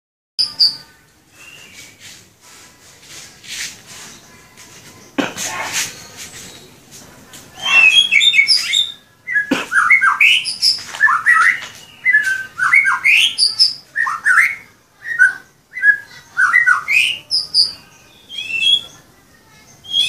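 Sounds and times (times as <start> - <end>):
bird singing whistled phrases: 0.4 - 2.2, 7.5 - 19.0, 19.7 - 20.0.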